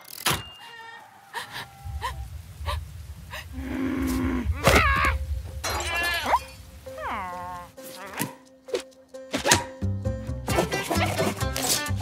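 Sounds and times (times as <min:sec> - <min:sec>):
short falling cries: 0:00.4 - 0:08.3
low drawn-out vocal groan: 0:00.9 - 0:06.4
low rumble: 0:01.3 - 0:07.8.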